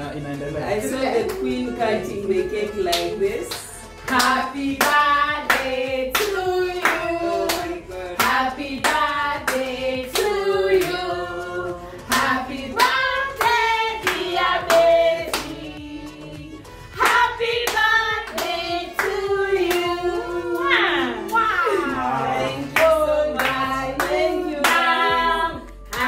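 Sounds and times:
women singing together: 0.7s - 26.0s
hands clapping in rhythm: 1.2s - 1.5s, 2.9s - 11.3s, 12.0s - 16.3s, 17.0s - 20.0s, 22.6s - 26.0s.

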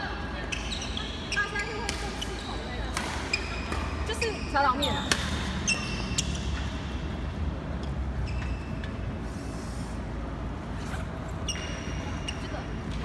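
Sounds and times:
shoes squeaking on floor: 0.4s - 6.8s, 8.2s - 9.0s, 10.8s - 13.0s
racket striking shuttlecock: 5.1s - 5.5s.

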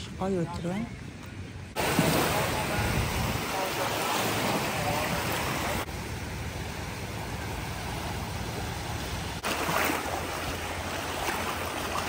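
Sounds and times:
wind rumbling on microphone: 0.9s - 5.9s
small waves lapping on shore: 1.8s - 12.0s.

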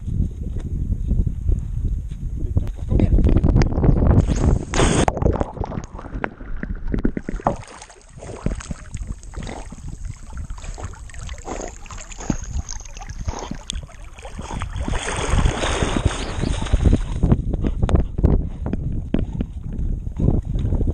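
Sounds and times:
dog splashing into water: 4.4s - 17.3s
water sloshing: 4.9s - 17.2s.

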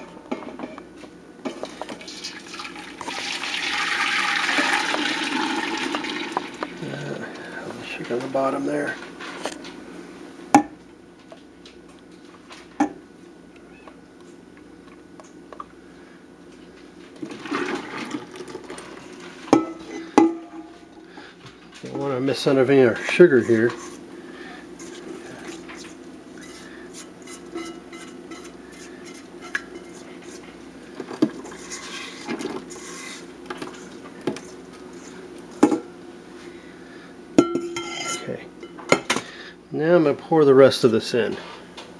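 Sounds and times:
low steady hum: 0.0s - 41.9s
liquid pouring into pot: 1.6s - 6.8s, 17.3s - 19.2s
spatula scraping mixing bowl: 22.7s - 35.6s
steel pot ringing: 27.3s - 30.0s, 37.4s - 38.8s.

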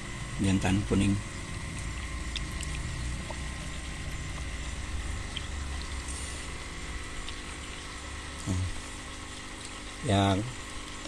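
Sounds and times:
low mechanical hum: 0.0s - 11.0s
fish splashing in water: 1.8s - 8.4s.

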